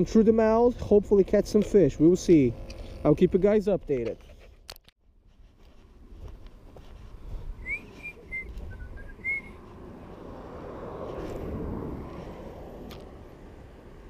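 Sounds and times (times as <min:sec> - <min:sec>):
whistled notes: 0:07.6 - 0:09.6.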